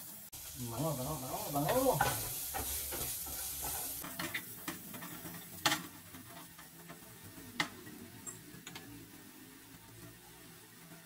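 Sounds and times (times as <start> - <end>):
garlic and onion sizzling in oil: 0.0 - 11.0
wooden spatula knocking frying pan: 1.6 - 5.9.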